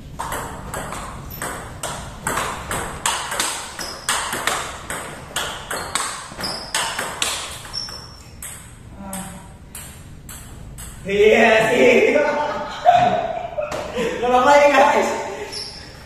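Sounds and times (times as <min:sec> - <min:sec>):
table tennis ball clicking: 0:00.2 - 0:11.0.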